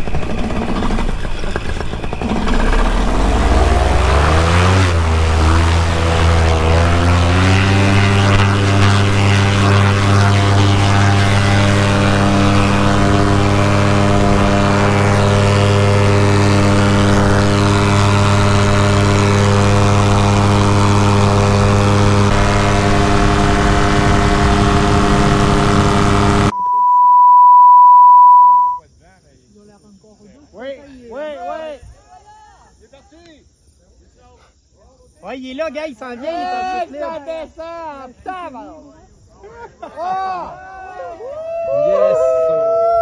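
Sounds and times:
paramotor engine and propeller droning: 0:00.0 - 0:26.5
steady high beep: 0:26.5 - 0:28.8.

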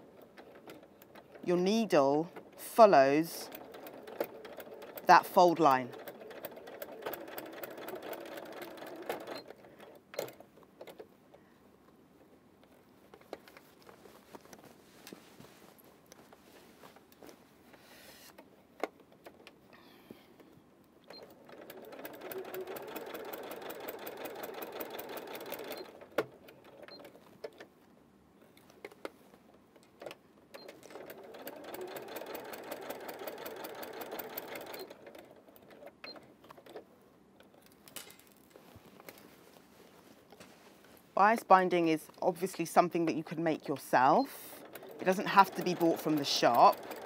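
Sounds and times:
sewing machine stitching: 0:00.2 - 0:10.4, 0:21.1 - 0:27.1, 0:30.6 - 0:35.9, 0:43.7 - 0:47.0
fabric rustling: 0:12.7 - 0:18.4, 0:38.4 - 0:41.2.

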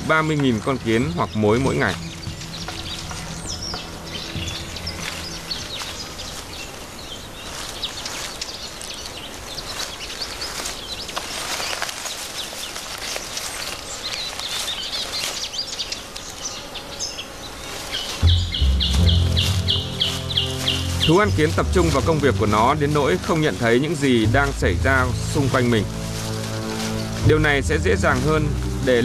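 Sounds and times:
insects buzzing: 0:00.0 - 0:29.0
high-pitched bird chirps: 0:18.2 - 0:21.7.

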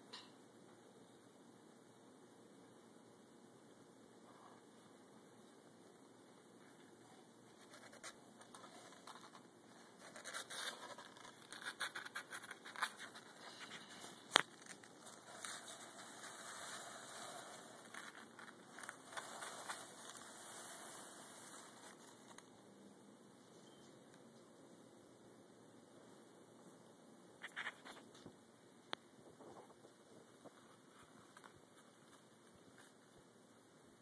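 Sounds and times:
claws scratching cardboard box: 0:07.7 - 0:22.3.

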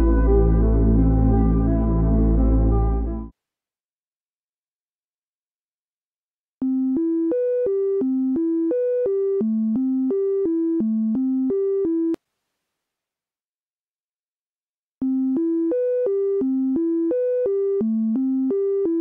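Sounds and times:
sine-wave synthesizer melody: 0:00.0 - 0:03.3, 0:06.6 - 0:12.2, 0:15.0 - 0:19.0.

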